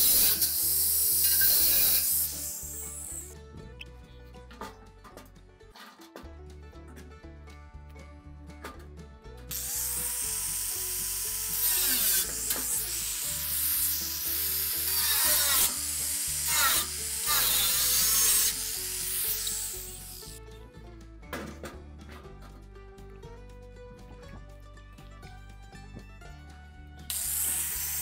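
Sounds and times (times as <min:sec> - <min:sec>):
angle grinder cutting metal: 0:00.0 - 0:03.4, 0:09.5 - 0:20.4, 0:27.1 - 0:28.0
background music: 0:00.0 - 0:28.0.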